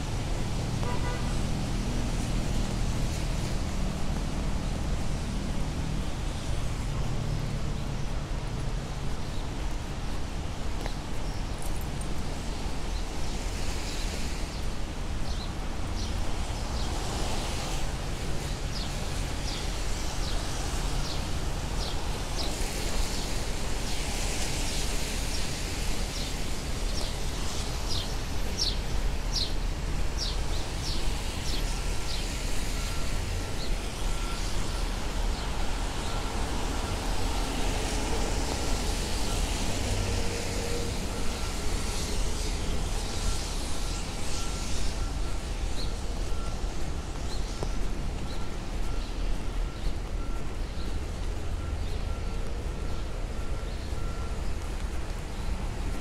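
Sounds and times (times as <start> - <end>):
traffic on wet roads: 0.0 - 56.0
faint repeating beep: 43.2 - 54.8.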